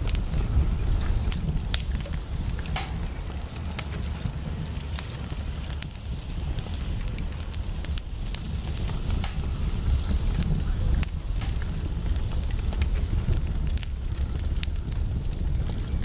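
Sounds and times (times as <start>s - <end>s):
wood fire crackling: 0.0s - 16.0s.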